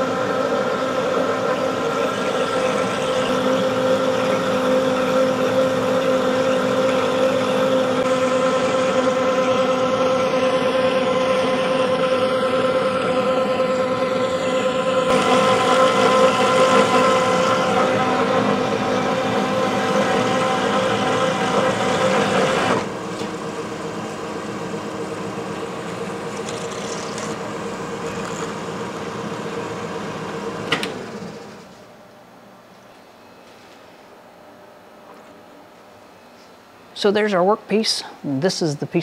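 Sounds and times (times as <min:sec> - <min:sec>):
band saw cutting steel: 0:00.0 - 0:22.9.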